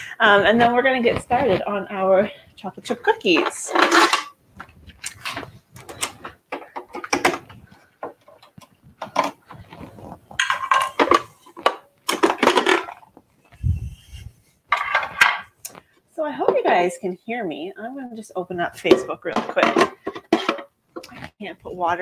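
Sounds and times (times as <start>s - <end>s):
dishes and utensils clinking: 3.4s - 4.4s, 10.4s - 13.0s.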